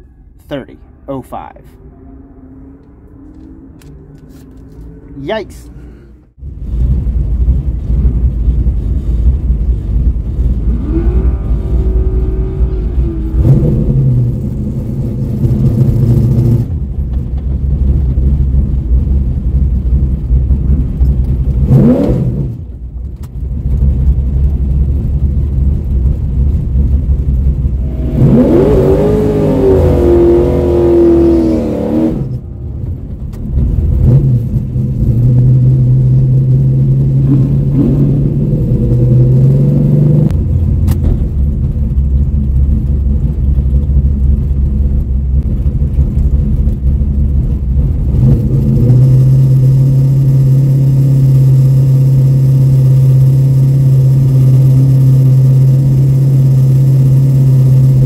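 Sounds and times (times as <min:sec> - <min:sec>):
car engine idling and revving: 0:00.0 - 0:58.0.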